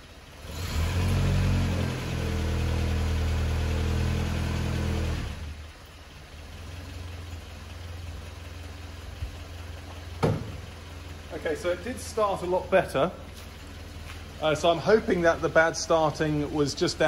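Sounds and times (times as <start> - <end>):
petrol engine revving and idling: 0.0 - 17.0.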